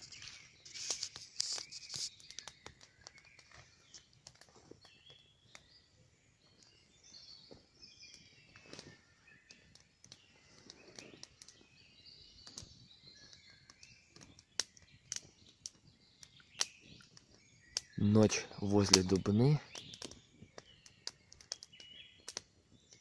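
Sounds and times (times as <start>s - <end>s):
songbirds chirping and singing: 0.0s - 23.0s.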